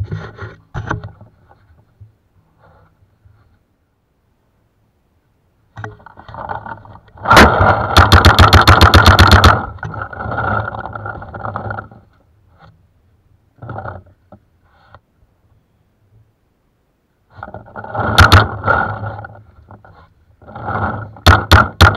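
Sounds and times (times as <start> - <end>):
paintball marker rapid firing: 7.3 - 9.7.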